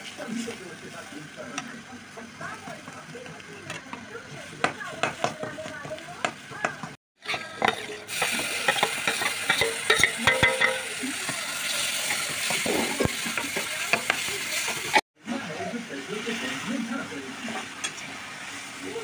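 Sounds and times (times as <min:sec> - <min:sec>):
tomato puree sizzling in oil: 0:00.0 - 0:15.0, 0:15.7 - 0:19.0
spatula scraping spices in pan: 0:07.2 - 0:10.7, 0:11.8 - 0:15.0.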